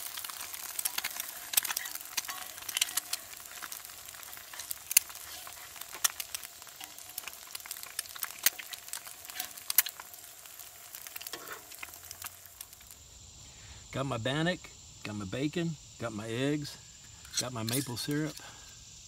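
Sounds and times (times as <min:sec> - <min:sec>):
eggs sizzling and popping: 0:00.0 - 0:13.8, 0:16.9 - 0:18.9
metal spatula scraping griddle: 0:00.2 - 0:07.3, 0:11.3 - 0:11.7.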